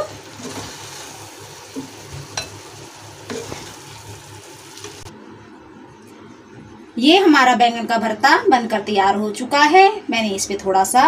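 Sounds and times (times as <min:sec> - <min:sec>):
wooden spatula stirring in pan: 0:00.0 - 0:05.1
low sizzle: 0:00.0 - 0:09.1.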